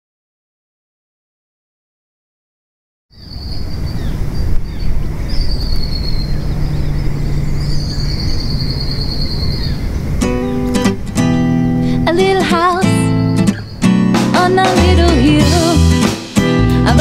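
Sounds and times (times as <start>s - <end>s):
birds calling and chirping: 3.1s - 15.0s
wind rumble: 3.2s - 14.3s
acoustic guitar strum: 10.2s - 17.0s.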